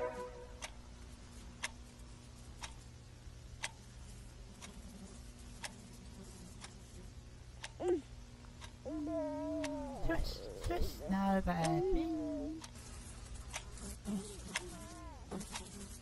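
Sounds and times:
clock ticking: 0:00.0 - 0:08.9, 0:09.5 - 0:09.9, 0:10.7 - 0:12.8
faint low hum: 0:00.0 - 0:16.0.

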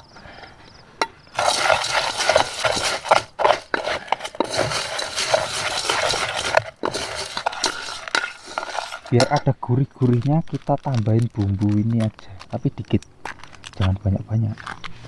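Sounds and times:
spoon scraping metal pot: 0:01.3 - 0:09.5.

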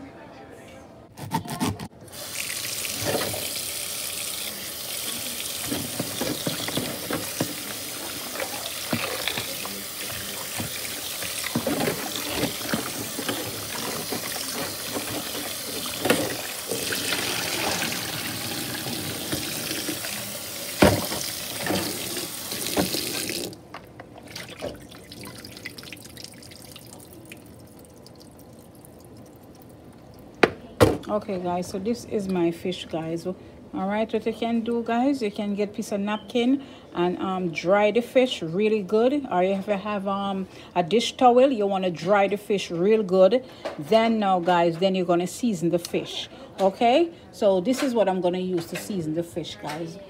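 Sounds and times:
hands rinsing fish: 0:02.2 - 0:23.6, 0:24.2 - 0:30.4.

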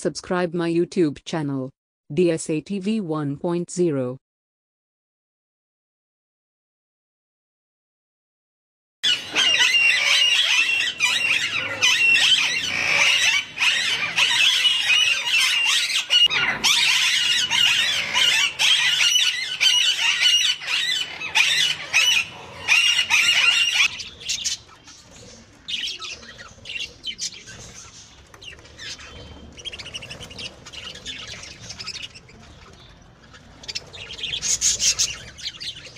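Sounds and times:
parakeets squawking: 0:09.0 - 0:35.9.

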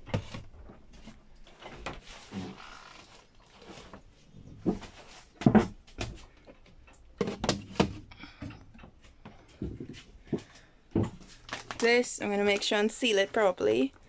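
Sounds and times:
plastic tub knocking and clunking: 0:07.2 - 0:08.1, 0:09.6 - 0:11.3.

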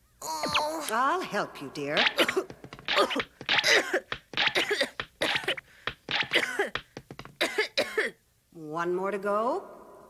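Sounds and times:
cartoon voice coughing: 0:02.0 - 0:05.6, 0:06.2 - 0:06.8.

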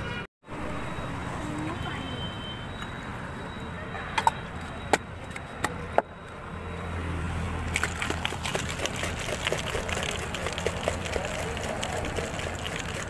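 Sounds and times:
drink being shaken in glass: 0:07.7 - 0:13.0.

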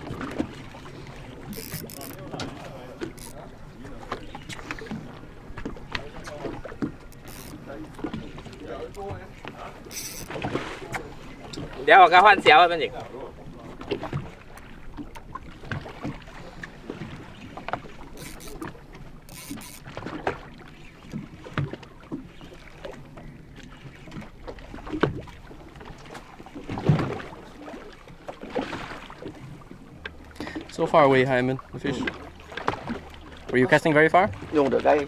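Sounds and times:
water splashing against boat hull: 0:00.0 - 0:35.0.

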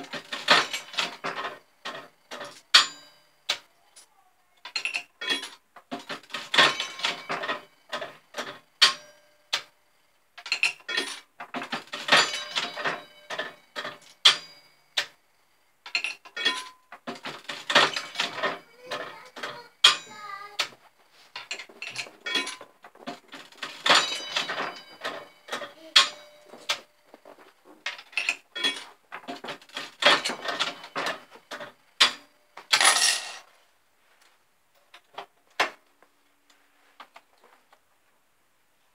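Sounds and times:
slot machine clicking and clinking: 0:06.2 - 0:08.1, 0:11.8 - 0:14.5, 0:23.3 - 0:26.9, 0:32.0 - 0:33.4.

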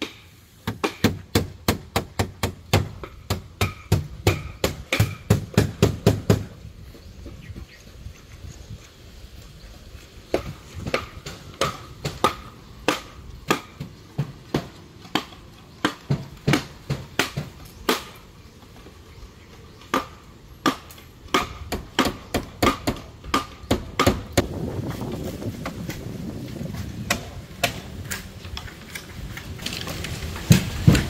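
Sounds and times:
blade chopping bamboo: 0:00.0 - 0:06.5, 0:10.3 - 0:18.3, 0:19.9 - 0:26.1, 0:26.9 - 0:31.0.

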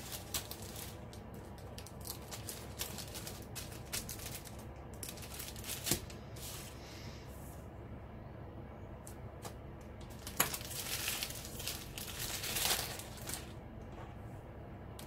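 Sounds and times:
plastic bags crinkling: 0:00.0 - 0:06.2, 0:10.0 - 0:13.6.

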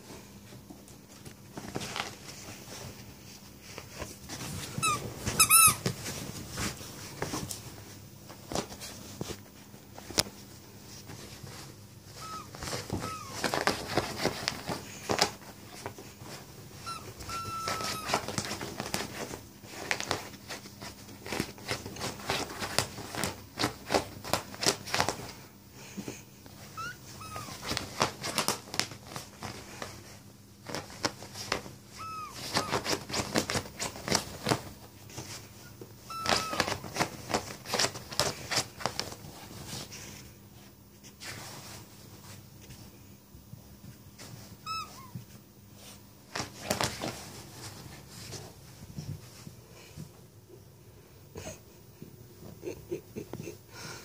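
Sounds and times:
dog scrabbling at bedding: 0:03.6 - 0:07.6, 0:11.1 - 0:25.2, 0:27.2 - 0:35.4, 0:36.1 - 0:39.9, 0:46.3 - 0:48.4
dog whining: 0:04.8 - 0:05.9, 0:12.2 - 0:14.5, 0:16.8 - 0:18.6, 0:26.6 - 0:28.6, 0:31.9 - 0:33.3, 0:36.0 - 0:37.1, 0:44.6 - 0:45.2.

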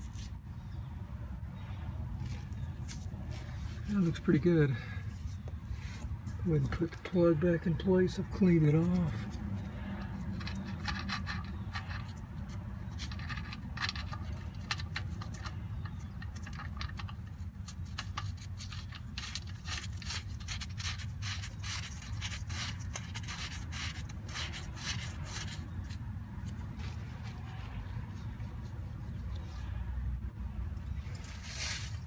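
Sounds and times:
metal threads scraping clicks: 0:08.9 - 0:26.6.

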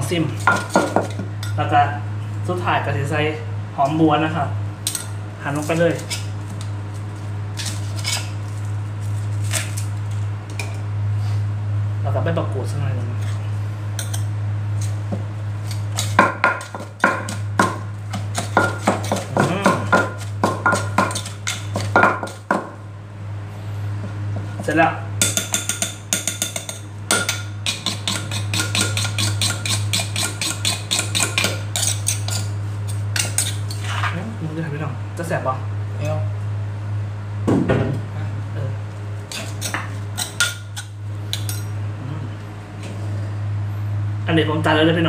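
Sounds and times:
steady low hum: 0:00.0 - 0:45.0
knife and spoon clicking on mortar: 0:15.7 - 0:22.6, 0:25.2 - 0:33.8.

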